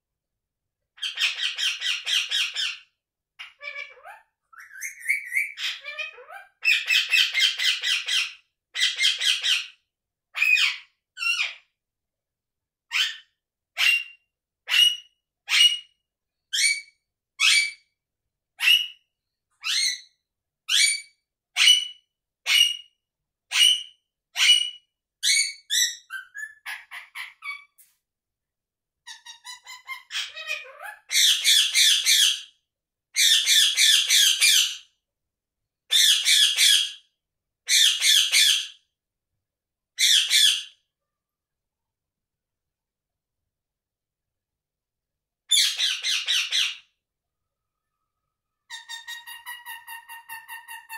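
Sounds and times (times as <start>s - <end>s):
parakeet calling: 1.0s - 2.8s, 3.4s - 9.7s, 10.4s - 11.6s, 19.6s - 20.1s, 20.7s - 27.7s, 29.1s - 32.4s
parakeet screeching: 1.0s - 2.8s, 3.4s - 9.7s, 10.4s - 11.6s, 12.9s - 15.9s, 16.6s - 17.8s, 18.6s - 19.0s, 19.6s - 20.1s, 20.7s - 22.9s, 23.5s - 27.7s, 29.1s - 32.5s, 33.2s - 34.8s, 35.9s - 37.0s, 37.7s - 38.7s, 40.0s - 40.8s, 45.5s - 46.8s, 48.7s - 50.9s.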